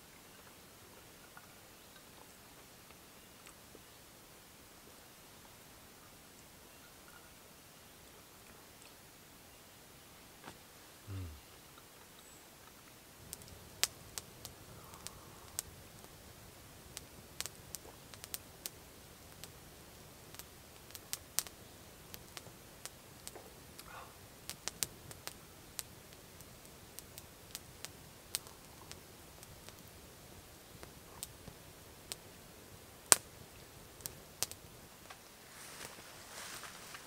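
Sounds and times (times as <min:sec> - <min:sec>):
faint steady hiss: 0:00.0 - 0:37.0
campfire crackling and popping: 0:12.6 - 0:37.0.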